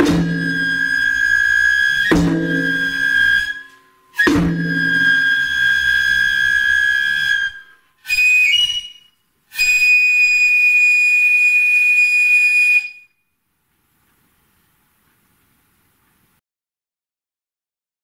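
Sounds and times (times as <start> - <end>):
bamboo flute playing: 0.0 - 13.2.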